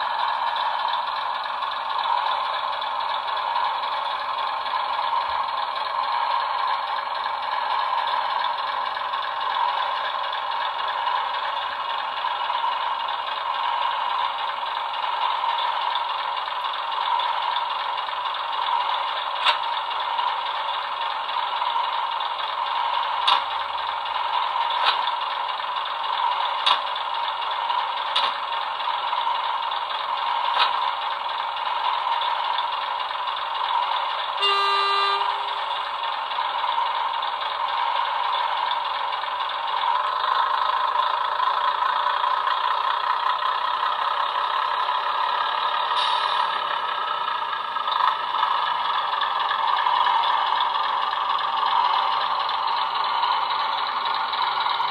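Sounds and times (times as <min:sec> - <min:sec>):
diesel engine idling through small speaker: 0:00.0 - 0:54.9
short horn blast: 0:34.4 - 0:35.7.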